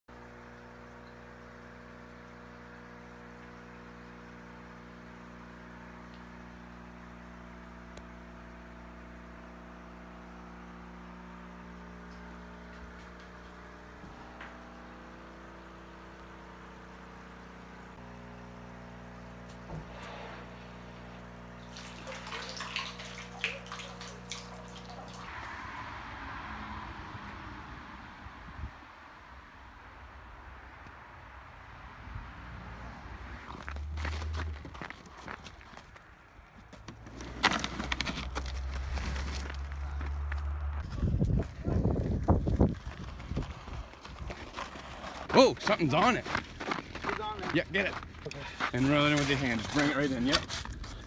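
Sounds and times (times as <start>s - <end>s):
low mechanical hum: 0.1s - 25.3s
water splashing and trickling: 0.1s - 26.8s.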